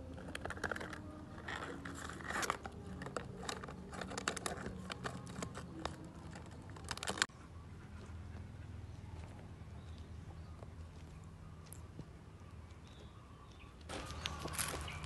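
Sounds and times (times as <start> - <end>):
plastic cup crinkling: 0.0 - 7.3, 13.9 - 15.0.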